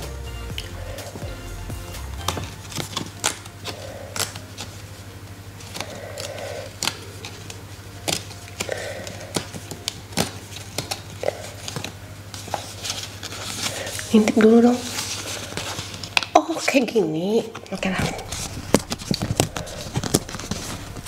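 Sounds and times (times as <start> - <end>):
paper envelope tearing: 17.8 - 21.0.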